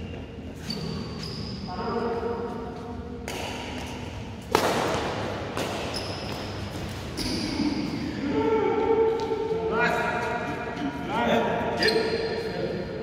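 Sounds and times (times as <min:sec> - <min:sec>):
shoe squeaks on court floor: 0:00.6 - 0:01.7, 0:05.8 - 0:07.9, 0:11.8 - 0:12.5.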